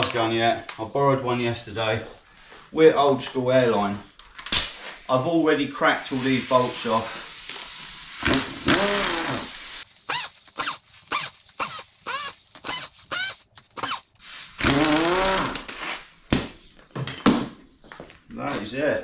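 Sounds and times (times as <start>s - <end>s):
air impact wrench whining: 4.7s - 16.0s.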